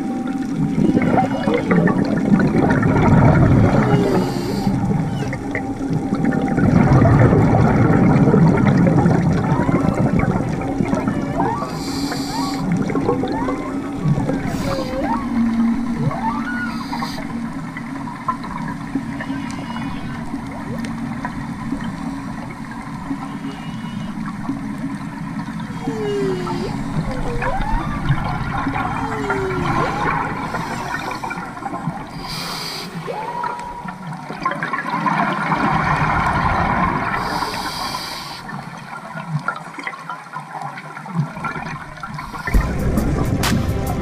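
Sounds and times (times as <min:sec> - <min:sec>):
exhaled bubbles rumbling: 0:00.0 - 0:44.0
faint gliding whistles: 0:03.6 - 0:06.0, 0:11.4 - 0:18.3, 0:18.9 - 0:21.1, 0:23.1 - 0:24.5
breath hissing through regulator: 0:03.8 - 0:05.4, 0:11.6 - 0:12.9, 0:14.4 - 0:15.4, 0:16.5 - 0:17.4, 0:29.2 - 0:31.5, 0:32.1 - 0:33.2, 0:37.2 - 0:38.6, 0:42.2 - 0:42.8.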